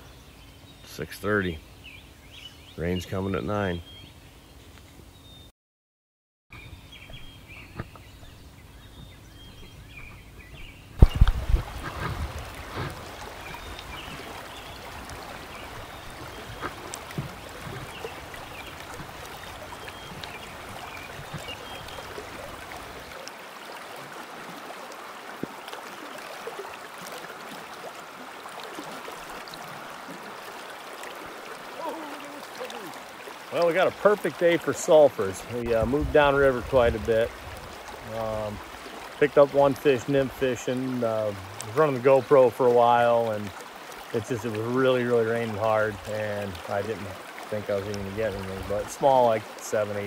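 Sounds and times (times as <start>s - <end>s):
creek water rushing: 6.7s - 50.0s
loud low thumps: 11.0s - 13.1s.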